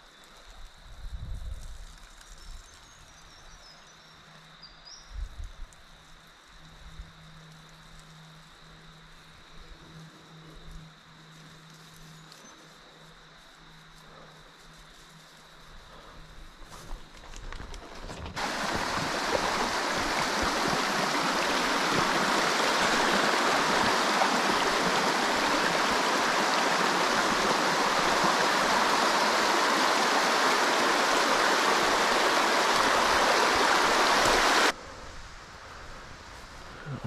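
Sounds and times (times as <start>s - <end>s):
creek water running over rocks: 18.0s - 34.8s.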